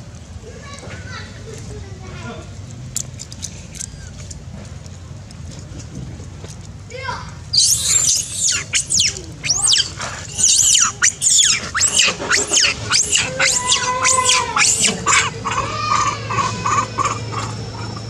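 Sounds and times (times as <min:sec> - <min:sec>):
monkeys squealing: 0:07.5 - 0:18.0.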